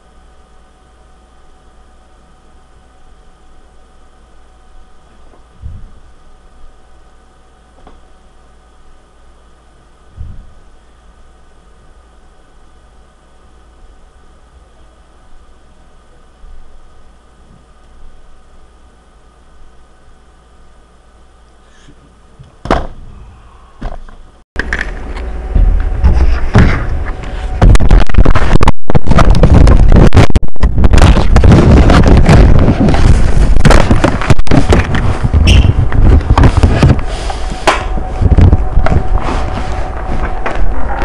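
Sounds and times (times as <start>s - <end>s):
microphone handling noise: 5.2s - 6.1s, 10.1s - 10.7s, 23.8s - 41.0s
loud rumbling and rubbing: 24.6s - 41.0s.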